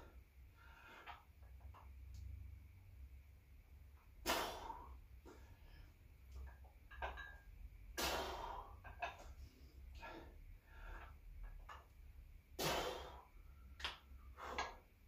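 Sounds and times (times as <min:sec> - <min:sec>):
steady low hum: 0:00.0 - 0:15.0
man breathing hard: 0:08.0 - 0:08.8, 0:09.4 - 0:11.2, 0:12.6 - 0:13.5, 0:14.2 - 0:14.9.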